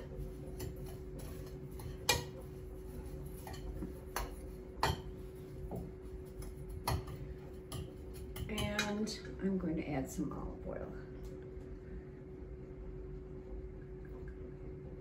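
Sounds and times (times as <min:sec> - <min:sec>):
metal spoon clinking on ceramic bowl: 0:06.9 - 0:09.0.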